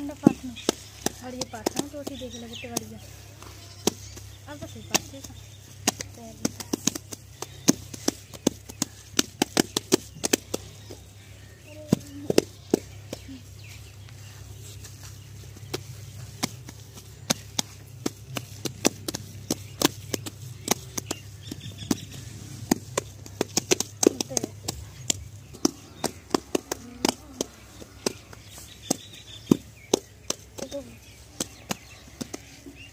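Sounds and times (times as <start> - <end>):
hands slapping wet dung: 3.9 - 10.8, 15.4 - 32.8.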